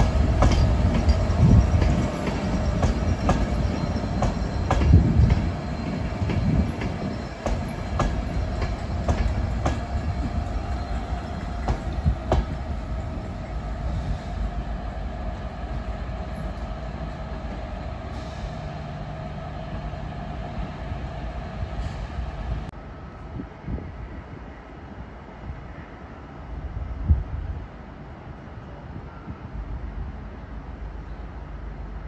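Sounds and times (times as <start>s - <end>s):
train wheels clicking over rail joints: 0.0s - 15.1s
train rolling rumble: 0.0s - 32.0s.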